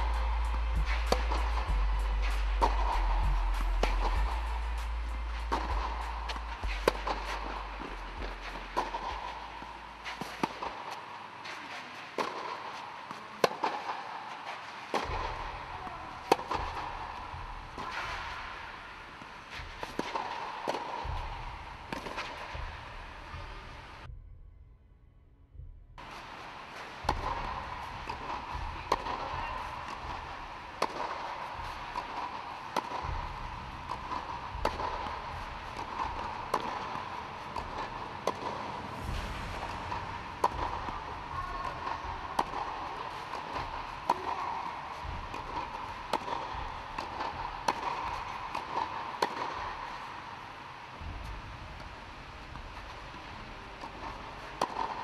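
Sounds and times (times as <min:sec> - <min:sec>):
tennis balls struck with rackets: 0:00.0 - 0:24.0, 0:26.0 - 0:55.0
steady background hum: 0:00.0 - 0:55.0.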